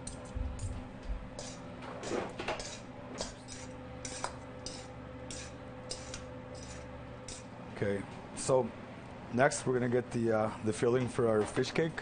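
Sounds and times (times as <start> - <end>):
forks scraping a metal bowl: 0.0 - 0.8, 1.4 - 7.5
steady low hum: 0.0 - 12.0.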